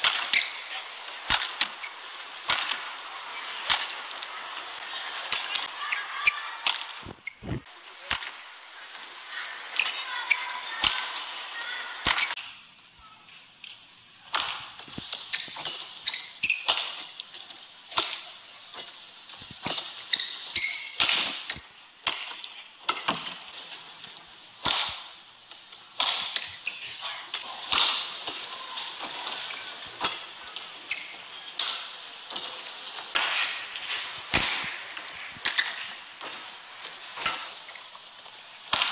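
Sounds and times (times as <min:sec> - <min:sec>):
shoes squeaking on court: 0:14.9 - 0:17.0, 0:19.6 - 0:21.7, 0:30.8 - 0:32.4.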